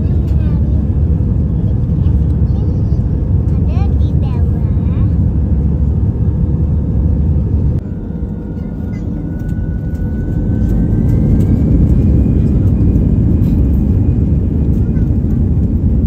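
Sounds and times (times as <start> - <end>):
jet engine cabin roar: 0.0 - 16.0
faint rising whine: 5.2 - 16.0.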